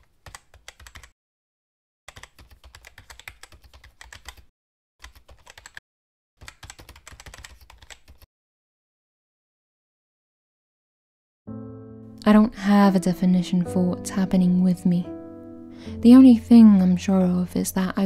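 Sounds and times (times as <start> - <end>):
computer keyboard typing: 0.0 - 1.1, 2.1 - 5.8, 6.4 - 8.3.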